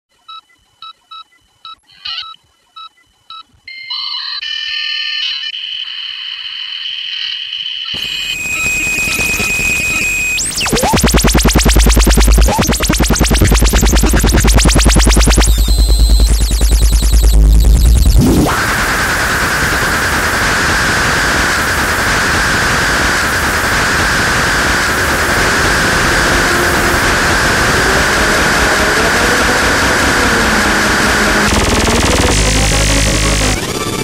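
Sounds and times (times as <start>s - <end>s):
synthesized tones: 8.0s - 34.0s
distorted kick drum with bass: 8.1s - 18.6s
rising noise wash: 10.0s - 34.0s.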